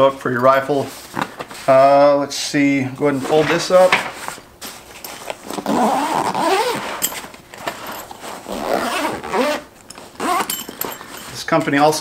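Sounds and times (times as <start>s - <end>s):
handling of fabric case: 4.6s - 11.4s
zipper on fabric case: 5.5s - 10.7s.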